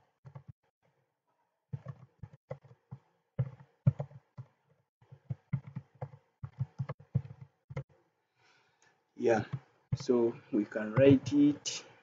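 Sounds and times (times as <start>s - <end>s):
computer keyboard typing: 1.8s - 8.0s, 9.4s - 11.7s.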